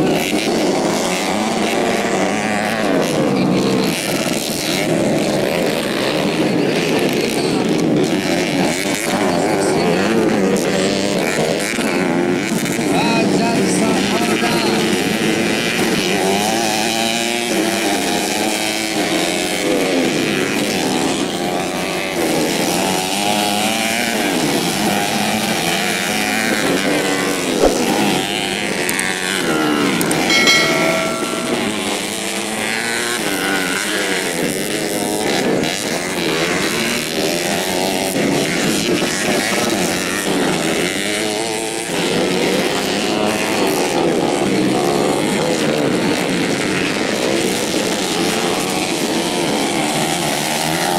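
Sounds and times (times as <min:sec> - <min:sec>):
steady tone: 0:30.0 - 0:32.7.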